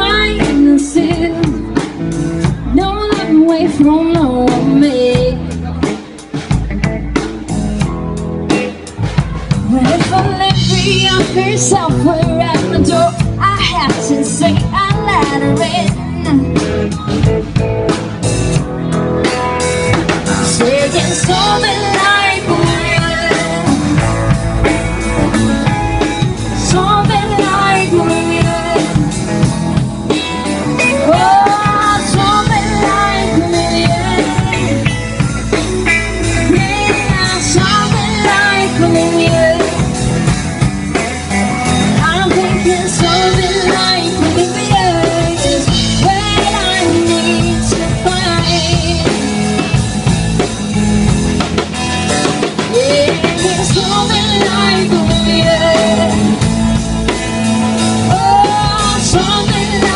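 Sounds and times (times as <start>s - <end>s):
woman singing into microphone: 0.0s - 1.8s, 2.7s - 5.8s, 9.6s - 16.7s, 20.4s - 24.4s, 26.0s - 29.5s, 30.8s - 35.0s, 36.3s - 40.0s, 41.9s - 49.8s, 52.6s - 56.5s, 57.9s - 59.9s
drum kit: 0.0s - 59.9s
electric guitar: 0.0s - 59.9s.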